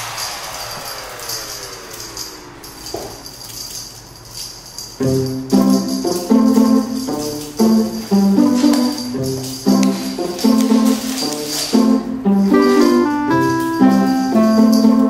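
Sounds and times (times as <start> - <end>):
light percussion with shimmer: 0.0 - 15.0
melody of held notes: 5.0 - 15.0.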